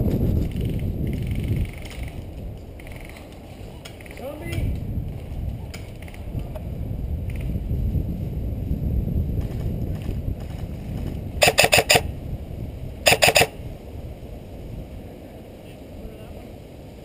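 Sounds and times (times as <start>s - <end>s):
airsoft rifle shots: 11.4s - 12.1s, 13.1s - 13.6s.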